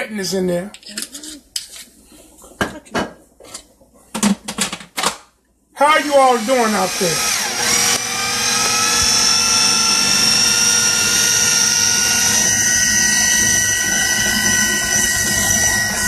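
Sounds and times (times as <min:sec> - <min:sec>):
food processor motor whining: 0:06.0 - 0:16.0.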